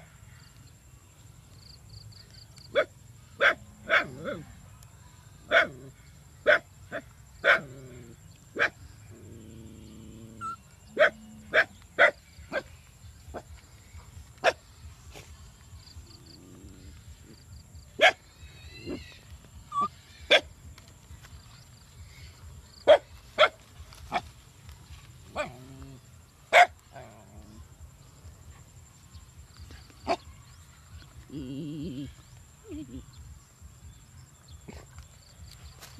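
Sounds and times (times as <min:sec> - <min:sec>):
animal barking calls: 0:02.7 - 0:04.6, 0:05.5 - 0:12.7, 0:18.0 - 0:20.6, 0:25.3 - 0:27.6.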